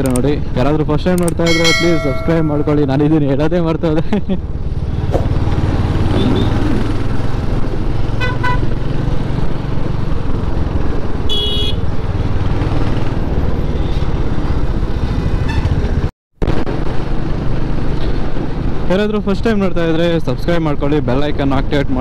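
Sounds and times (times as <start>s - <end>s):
horn honks: 8.2s - 8.7s, 11.3s - 11.8s.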